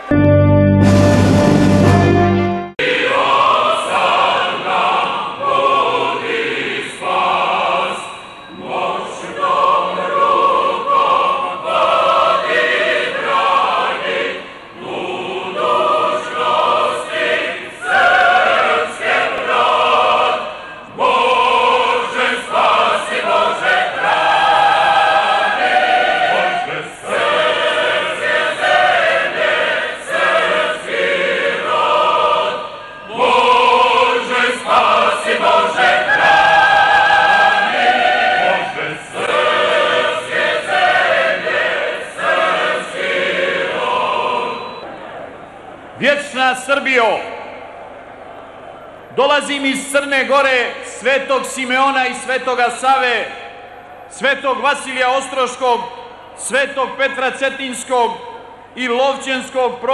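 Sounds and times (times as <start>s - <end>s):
choir singing: 0.0s - 44.9s.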